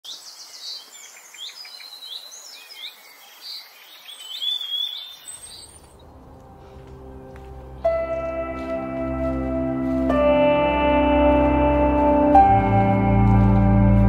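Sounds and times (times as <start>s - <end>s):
wild birds singing: 0.0s - 10.6s
low musical drone: 5.7s - 14.0s.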